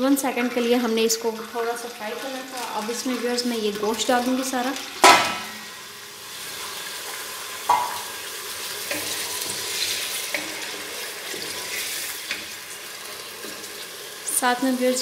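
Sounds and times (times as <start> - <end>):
beef sizzling in hot oil: 0.0 - 15.0
wooden spatula knocking pot: 7.7 - 8.1.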